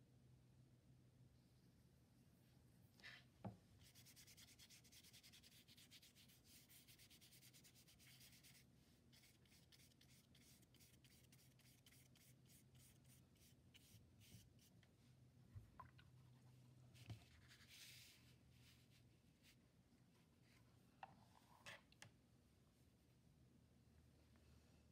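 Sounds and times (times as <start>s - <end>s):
paintbrush scrubbing on paper: 3.8s - 14.8s.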